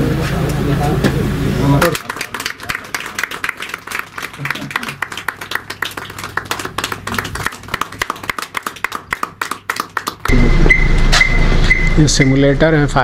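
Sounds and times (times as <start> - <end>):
people clapping: 1.8 - 10.4.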